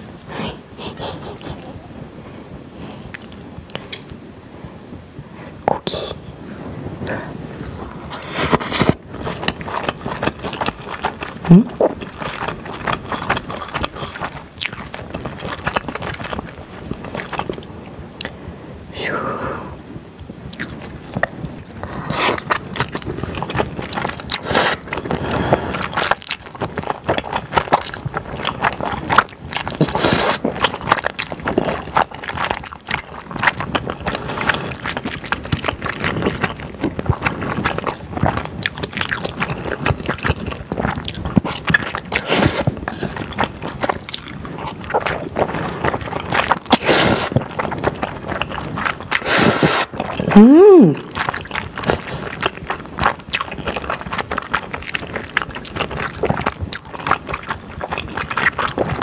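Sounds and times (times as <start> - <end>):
noodles slurped and chewed: 7.5 - 19.8, 20.4 - 59.0.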